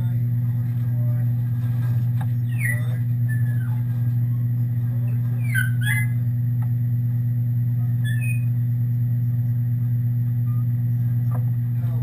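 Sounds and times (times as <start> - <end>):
steady low hum: 0.0 - 12.0
high squeaky chirps: 2.4 - 3.8, 5.4 - 6.2, 8.0 - 8.6.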